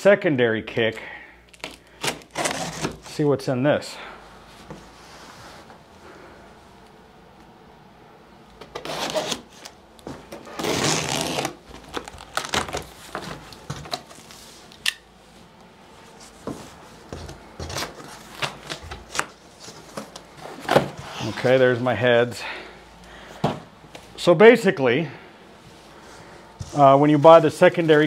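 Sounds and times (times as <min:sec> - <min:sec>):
cardboard tearing: 0:01.5 - 0:03.1, 0:08.7 - 0:09.7, 0:10.3 - 0:14.2.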